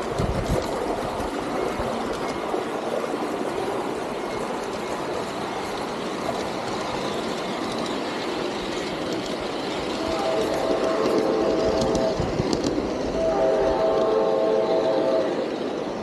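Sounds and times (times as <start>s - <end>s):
model train wheels on rails: 0.0s - 16.0s.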